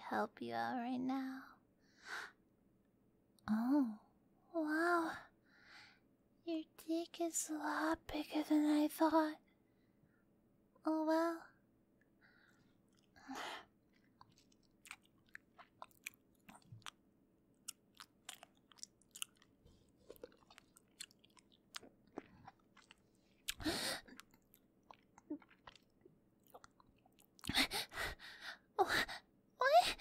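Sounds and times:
wet clicking and smacking: 13.9s - 17.0s, 17.6s - 27.5s.

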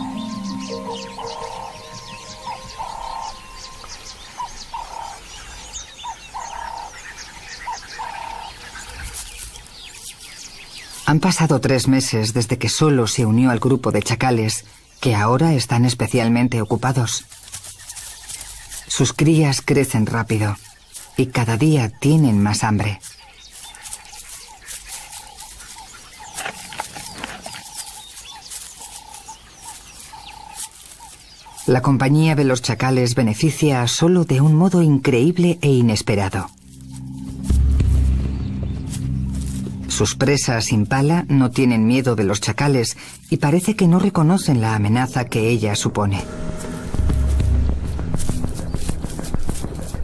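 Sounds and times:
repeated two-note animal call: 0.0s - 5.2s
pups squeaking: 0.0s - 7.1s, 23.0s - 32.2s, 40.9s - 50.0s
scuffling in grass: 0.0s - 11.4s, 16.8s - 32.4s, 34.5s - 50.0s
small chirps of birds or insects: 0.0s - 12.3s, 13.2s - 33.9s.

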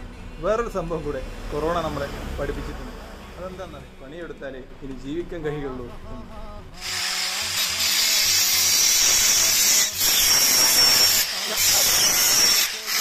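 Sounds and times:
angle grinder grinding steel: 6.8s - 13.0s.

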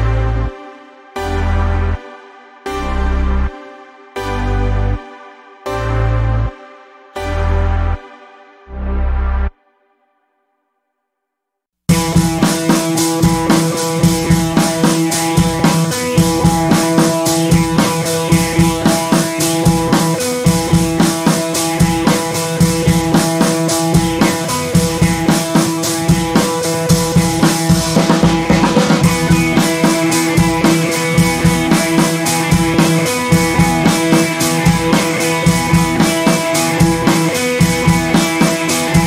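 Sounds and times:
background music with drum beat: 11.9s - 39.0s.

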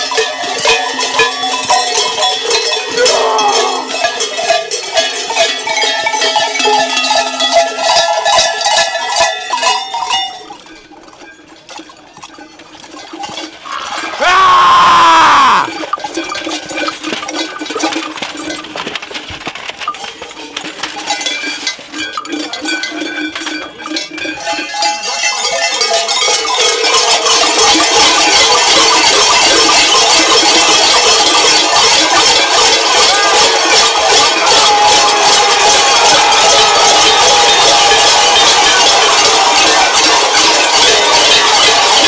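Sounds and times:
large cowbells clanging: 0.0s - 42.0s.

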